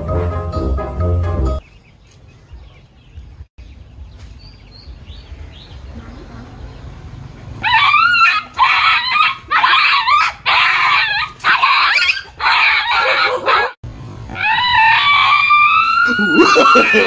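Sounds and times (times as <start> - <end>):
puppy yelping: 7.6 - 17.0.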